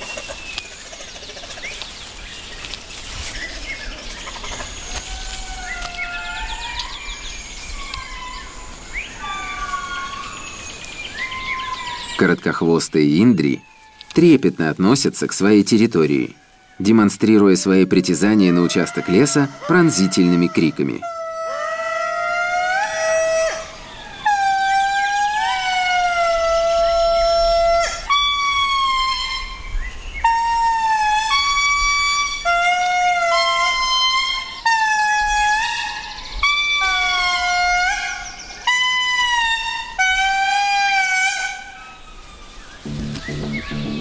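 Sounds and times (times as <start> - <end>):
lemurs wailing in chorus: 16.0 - 29.7, 30.3 - 44.0.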